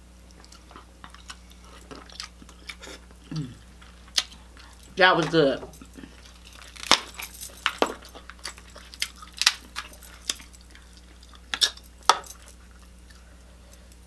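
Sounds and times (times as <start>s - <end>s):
light chewing: 0.2s - 14.0s
crab shells cracking: 6.2s - 11.8s.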